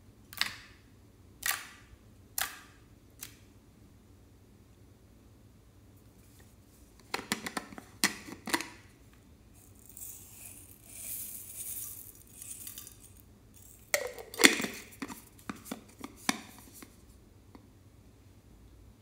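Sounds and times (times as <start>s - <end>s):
beads pouring with soft hiss: 9.5s - 14.0s.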